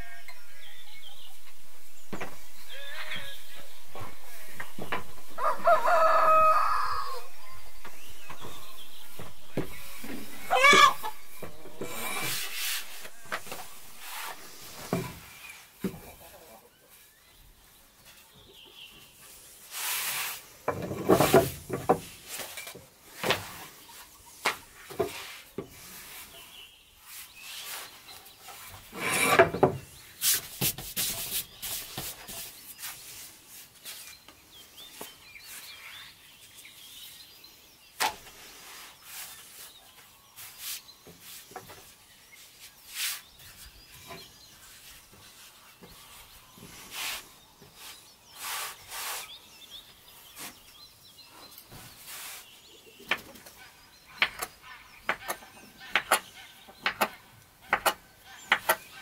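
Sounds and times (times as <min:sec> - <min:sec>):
rolling pin rubbing over dough: 0:07.9 - 0:15.3.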